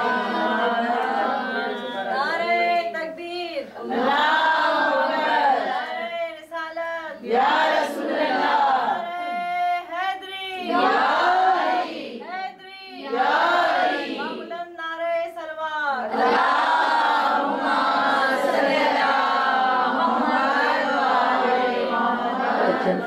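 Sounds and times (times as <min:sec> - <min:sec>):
many voices chanting in unison: 0:00.0 - 0:02.8, 0:03.8 - 0:06.1, 0:07.1 - 0:09.5, 0:10.6 - 0:14.5, 0:16.1 - 0:23.0
woman chanting: 0:00.0 - 0:23.0.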